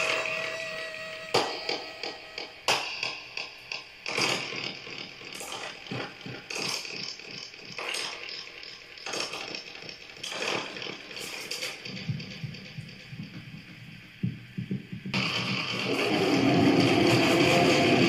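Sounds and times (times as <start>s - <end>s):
metallic clanks and rattles: 2.8s - 14.2s.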